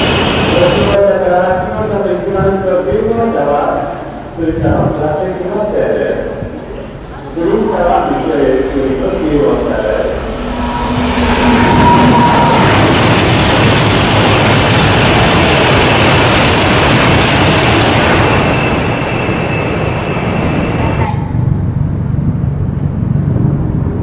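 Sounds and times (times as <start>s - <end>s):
train passing at high speed: 0.0s - 24.0s
low rumble: 8.2s - 15.0s, 21.0s - 24.0s.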